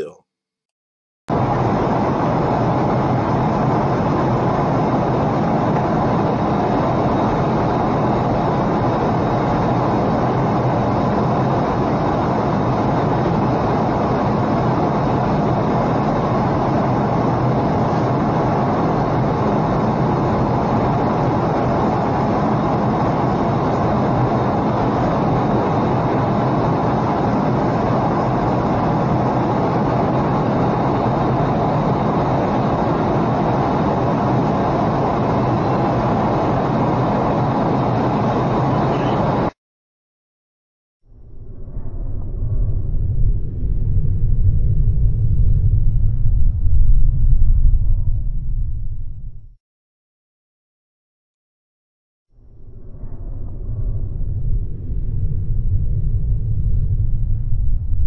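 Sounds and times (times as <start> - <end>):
faint high whine: 1.3 - 39.6
jet engines and airflow rush: 1.3 - 39.6, 41.1 - 49.6, 52.4 - 58.0.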